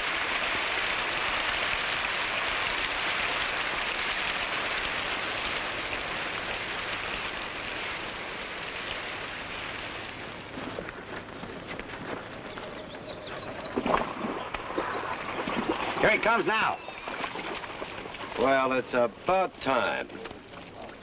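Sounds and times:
steady rain falling: 0.0 - 21.0.

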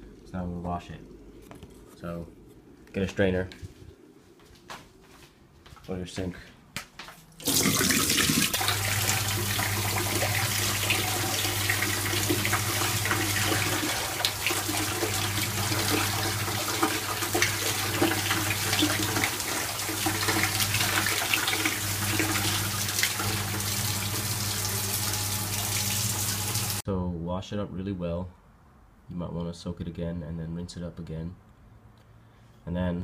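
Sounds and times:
steady low hum: 0.0 - 6.8
water spraying and splashing: 7.4 - 26.8.

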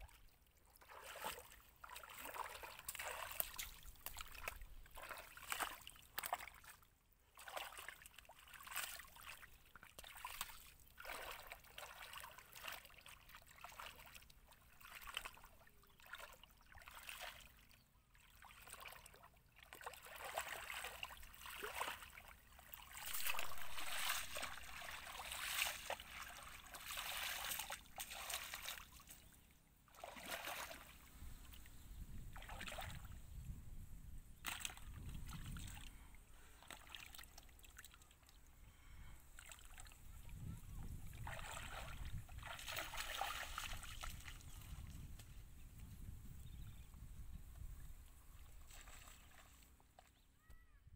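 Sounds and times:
wading steps through water: 0.0 - 31.6, 32.4 - 33.1, 34.4 - 38.3, 40.9 - 45.2, 48.4 - 50.2
hands splashing through muddy water: 0.9 - 6.8, 18.5 - 29.3, 29.9 - 30.9, 32.4 - 33.1, 34.4 - 35.9, 41.1 - 45.1, 48.6 - 49.7.

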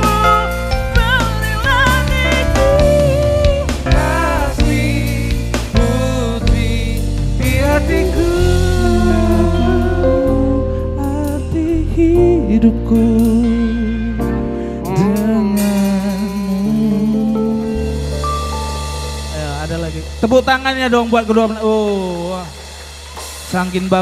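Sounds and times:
live band playing: 0.0 - 24.0
man singing into a microphone: 1.8 - 18.0.

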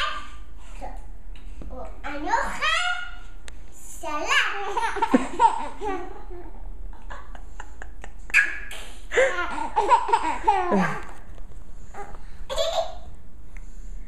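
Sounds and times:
laughter: 5.0 - 6.1, 6.9 - 8.5.

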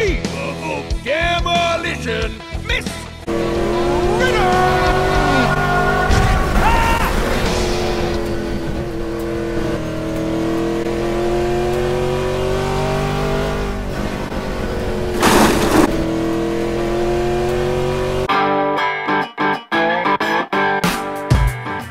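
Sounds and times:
race car engines revving: 3.2 - 18.3
short rush of noise: 15.2 - 16.0.

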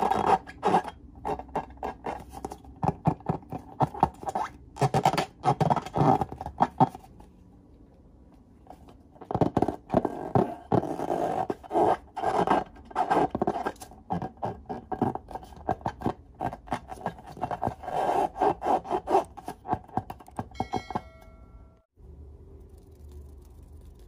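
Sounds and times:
fingers rubbing rubber balloon: 0.0 - 7.1, 9.2 - 20.5
brief ringing tone: 20.6 - 21.9.

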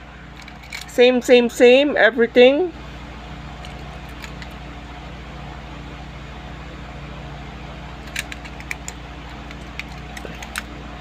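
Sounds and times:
low background hum: 0.0 - 11.0
toy cars clicking together: 0.4 - 0.9, 8.0 - 10.7.

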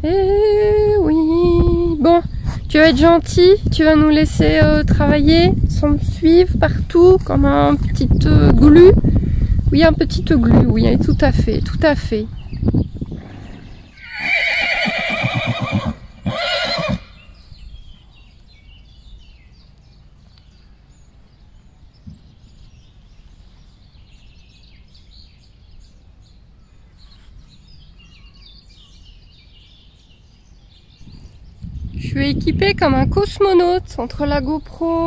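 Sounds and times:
horse whinnying: 13.1 - 17.2.

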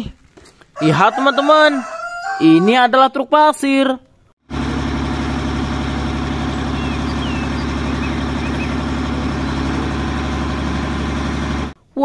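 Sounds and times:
dump truck diesel engine running: 4.5 - 11.8.

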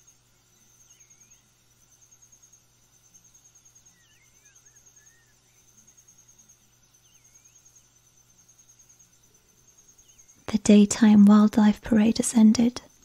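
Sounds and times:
cricket-like insect trill: 0.0 - 13.0.

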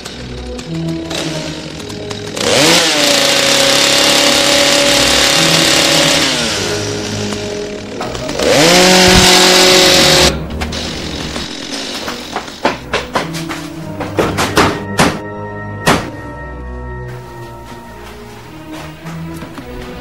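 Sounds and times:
chainsaw engine revving: 0.0 - 12.6.

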